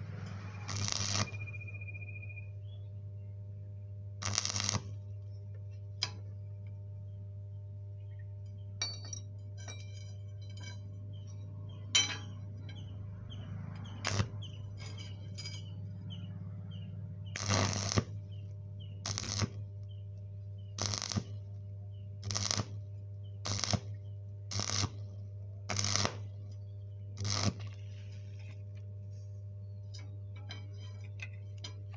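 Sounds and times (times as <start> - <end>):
crackling welding arc: 0.0 - 1.4, 4.2 - 5.1, 13.9 - 15.1, 17.3 - 19.9, 20.7 - 21.6, 22.2 - 26.6, 27.2 - 28.8
low electrical hum: 0.0 - 31.9.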